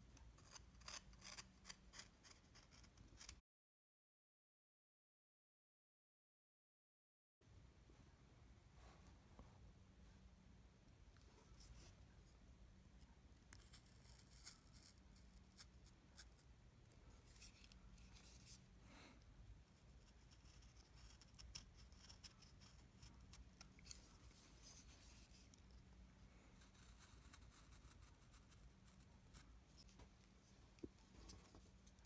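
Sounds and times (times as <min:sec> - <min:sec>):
low steady hum: 0:07.4 - 0:32.0.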